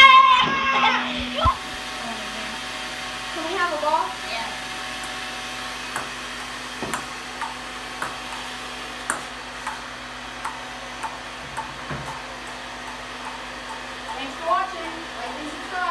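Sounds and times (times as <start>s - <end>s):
steady whirring noise: 0.0s - 15.9s
ping pong ball bouncing on paddle: 5.9s - 14.6s.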